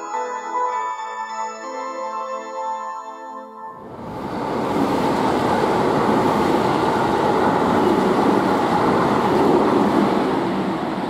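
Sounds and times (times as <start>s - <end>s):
freight train wheels rumbling: 3.8s - 11.0s.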